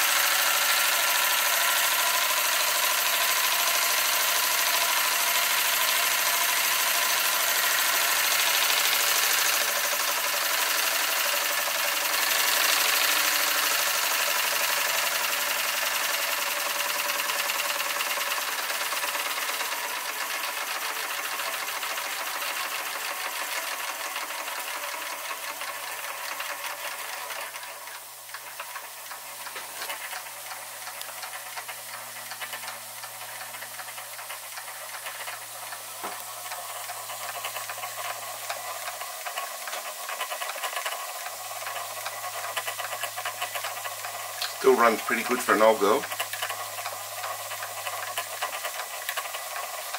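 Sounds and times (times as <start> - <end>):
steam hiss: 0.0 - 26.3
toy steam engine clattering: 0.0 - 49.9.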